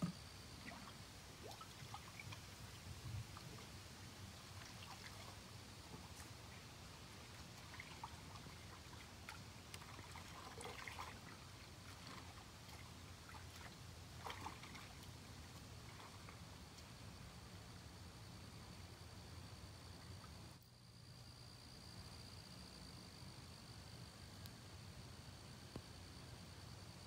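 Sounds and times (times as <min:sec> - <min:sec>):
faint ticks: 0:14.7 - 0:17.0, 0:24.2 - 0:24.7, 0:25.6 - 0:26.2.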